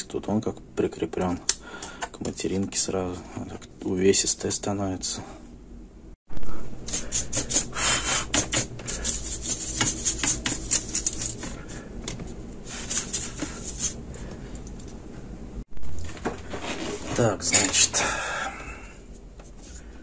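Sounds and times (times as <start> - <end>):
paintbrush scrubbing plastic: 6.8 - 11.9, 12.6 - 14.0.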